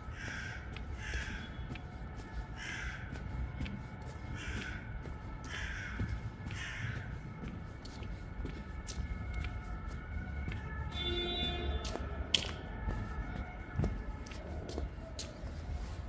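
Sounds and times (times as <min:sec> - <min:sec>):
crow cawing: 0:00.0 - 0:01.7, 0:02.6 - 0:03.6, 0:04.2 - 0:07.4
low city rumble: 0:00.0 - 0:16.0.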